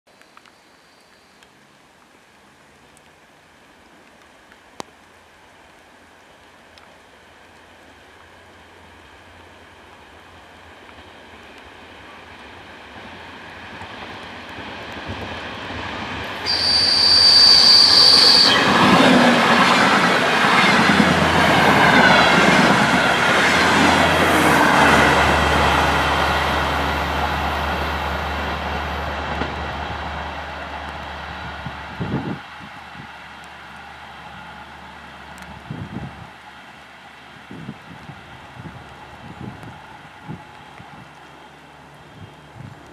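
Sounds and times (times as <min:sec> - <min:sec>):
train horn: 0:16.4 - 0:18.7.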